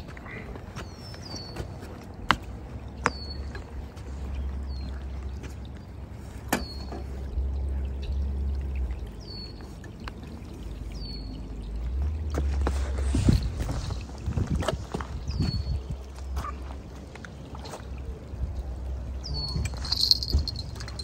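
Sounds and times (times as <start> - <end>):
wind rumble on microphone: 11.9 - 16.9.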